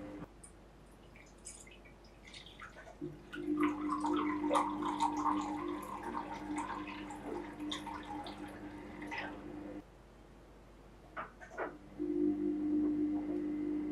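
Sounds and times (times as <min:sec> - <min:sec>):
steady low hum: 0:00.0 - 0:13.9
water trickling into a bowl: 0:01.0 - 0:09.3.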